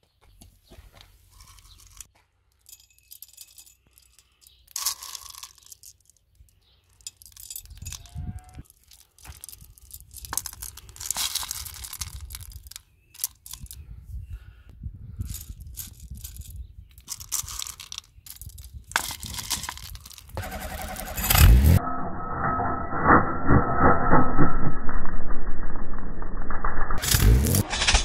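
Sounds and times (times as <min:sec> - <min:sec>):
candies clicking and rattling in bowl: 0:02.7 - 0:08.0, 0:08.6 - 0:13.8, 0:15.3 - 0:20.4
low rumble: 0:20.4 - 0:28.0.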